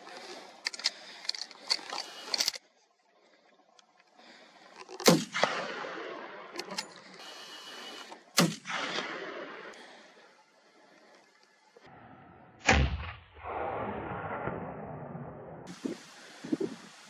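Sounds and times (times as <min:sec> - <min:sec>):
gunshots with rolling echo: 0:05.0 - 0:06.8, 0:08.4 - 0:09.8, 0:12.8 - 0:15.7.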